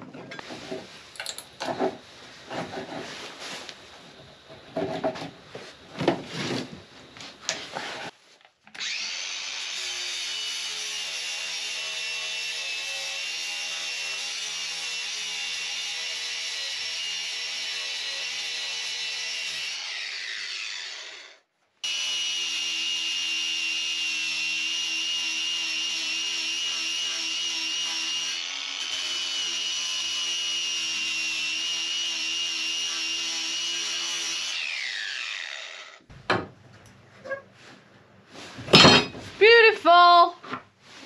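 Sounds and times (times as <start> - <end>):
angle grinder grinding wood: 8.8 - 36.1.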